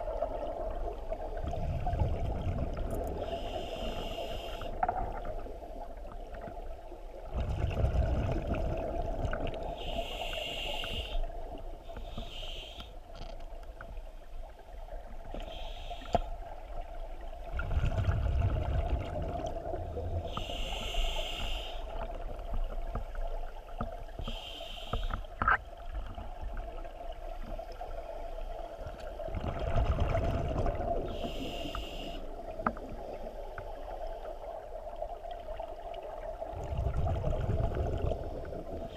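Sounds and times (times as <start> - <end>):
gurgle of exhaled bubbles: 0.0 - 3.4, 7.2 - 9.8, 17.4 - 20.4, 29.2 - 31.4, 34.8 - 38.9
regulator hiss on inhalation: 3.2 - 4.8, 9.8 - 11.3, 12.0 - 13.0, 15.4 - 16.3, 20.3 - 21.9, 24.2 - 25.3, 31.1 - 32.3.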